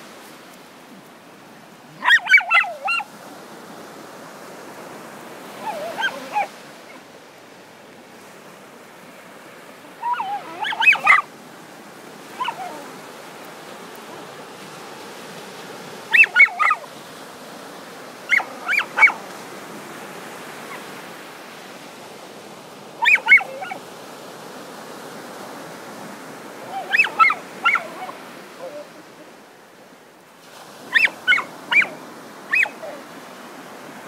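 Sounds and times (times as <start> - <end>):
dog yipping: 2.0 - 3.1, 5.6 - 7.0, 10.0 - 11.3, 12.3 - 12.9, 16.1 - 16.9, 18.3 - 19.2, 23.0 - 23.8, 26.7 - 29.0, 30.9 - 33.0.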